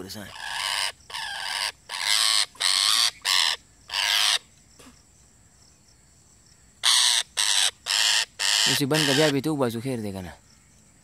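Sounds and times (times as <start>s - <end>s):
parakeet screeching: 0.2s - 4.4s, 6.8s - 9.4s.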